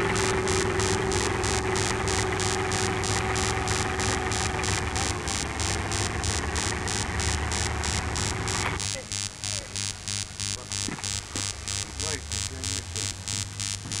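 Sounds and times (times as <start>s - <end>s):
rush of noise: 0.0s - 8.8s
electrical mains hum: 0.0s - 14.0s
pulsing static buzz: 0.0s - 14.0s.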